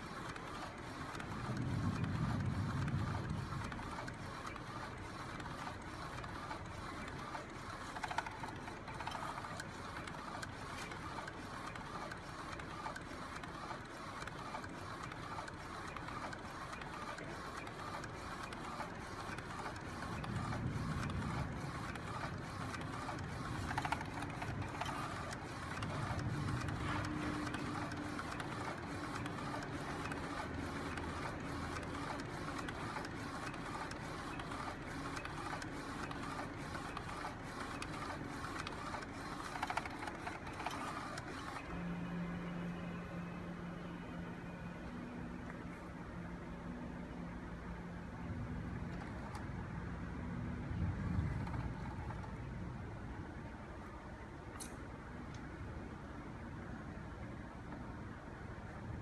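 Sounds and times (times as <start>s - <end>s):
printer carriage whirring: 0.0s - 59.0s.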